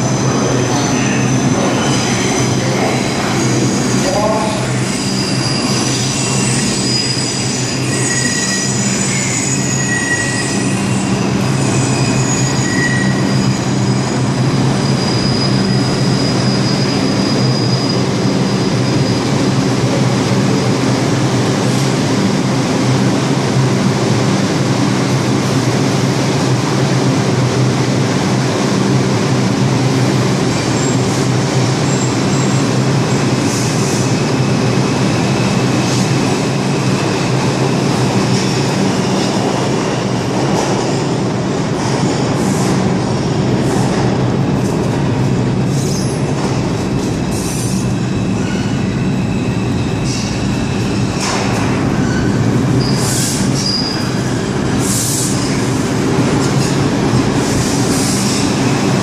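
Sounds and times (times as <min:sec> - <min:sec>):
subway train rumbling: 0:00.0 - 0:59.0
high wheel squeals: 0:04.6 - 0:19.2, 0:47.2 - 0:51.2, 0:52.0 - 0:55.6.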